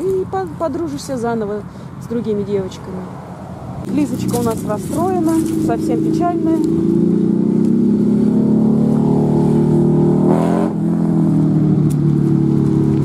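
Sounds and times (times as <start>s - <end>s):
motorcycle engines passing: 0.0s - 13.0s.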